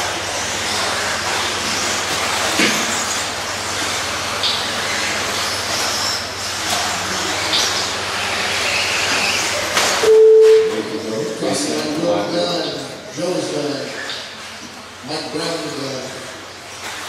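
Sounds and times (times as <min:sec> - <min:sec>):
electronic beep: 0:10.0 - 0:10.9.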